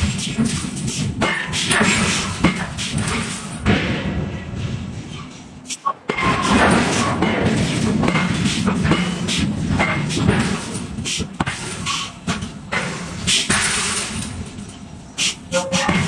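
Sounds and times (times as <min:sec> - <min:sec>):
sharp metal bangs: 0:06.1 - 0:16.0
hiss bursts from equipment: 0:15.2 - 0:15.4.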